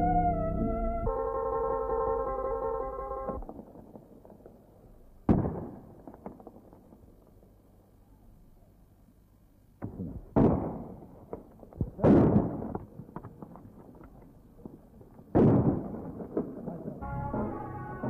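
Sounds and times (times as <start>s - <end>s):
music with held notes: 0.0s - 3.4s, 17.0s - 18.0s
small crackles: 3.3s - 8.7s, 10.9s - 17.0s.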